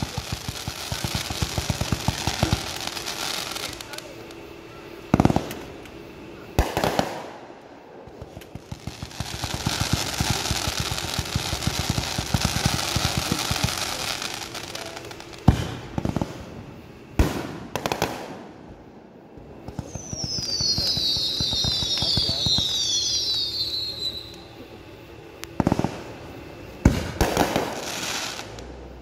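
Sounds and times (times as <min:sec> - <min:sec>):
firework bangs: 0:00.0 - 0:04.4, 0:05.0 - 0:24.6, 0:25.4 - 0:28.8
firework crackling and hissing: 0:00.0 - 0:29.0.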